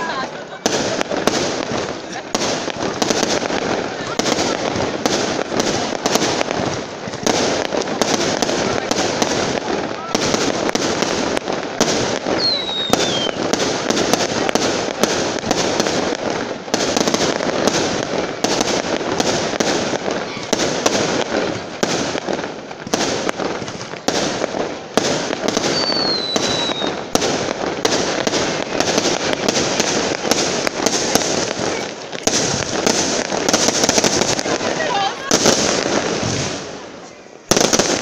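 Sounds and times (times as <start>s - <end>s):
fireworks bursting: 0.0s - 38.0s
falling firework whistles: 12.3s - 13.6s, 25.2s - 27.3s.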